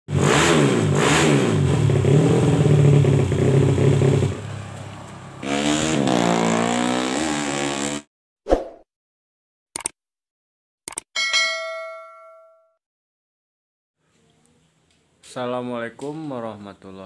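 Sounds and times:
motorcycle engine revving: 0:00.1 - 0:08.1.

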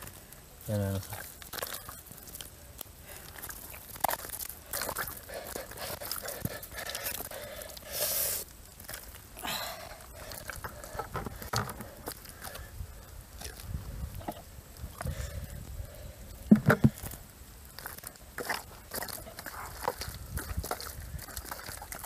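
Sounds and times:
hands squelching in wet mud: 0:01.0 - 0:10.9, 0:16.9 - 0:22.0.

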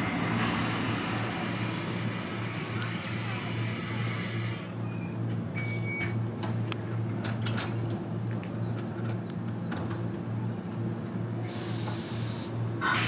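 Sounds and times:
electric train humming: 0:00.0 - 0:04.8
hiss: 0:11.5 - 0:13.0.

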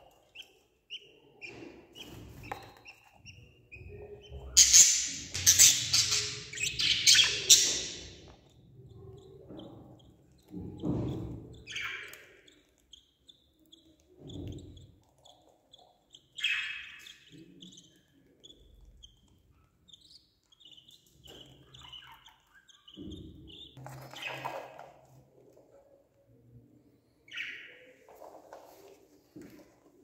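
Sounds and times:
chicks chirping: 0:00.0 - 0:24.6.

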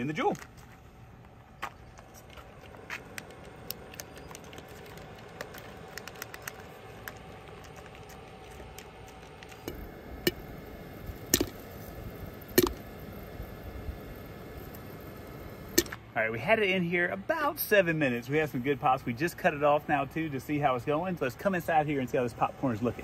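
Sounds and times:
low steady hiss: 0:02.8 - 0:23.0
popcorn kernel popping: 0:03.0 - 0:11.8, 0:12.4 - 0:12.9.

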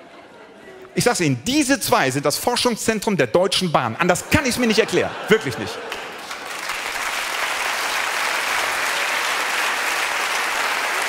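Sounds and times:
studio audience applauding: 0:04.6 - 0:11.0.

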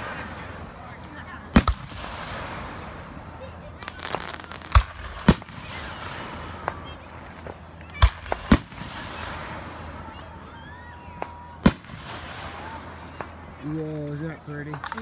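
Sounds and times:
fireworks bangs: 0:00.0 - 0:14.0
faint firework pops: 0:03.8 - 0:05.8, 0:06.6 - 0:09.3, 0:14.7 - 0:15.0.

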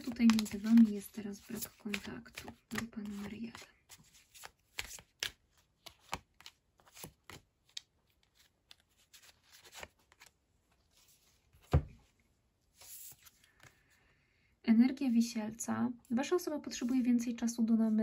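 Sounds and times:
cards shuffling: 0:00.0 - 0:10.3
cards thumping on wooden table: 0:11.6 - 0:12.0.

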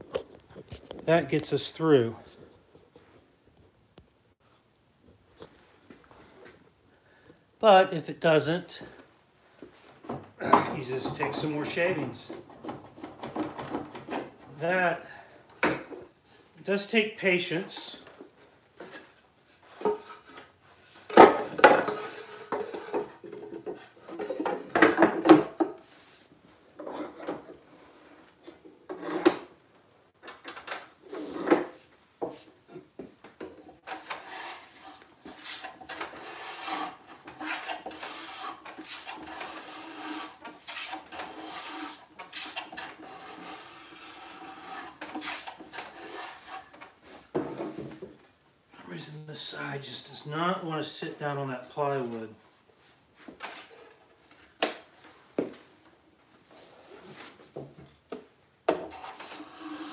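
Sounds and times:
hand plane shaving wood: 0:33.7 - 0:46.8, 0:58.8 - 0:59.9.

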